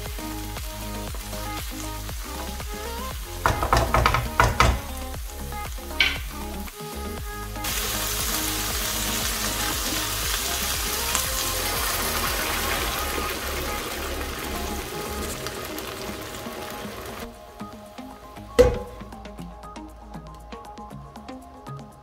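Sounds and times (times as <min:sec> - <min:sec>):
background music: 0:00.0 - 0:22.0
food sizzling in a pan: 0:07.6 - 0:17.3.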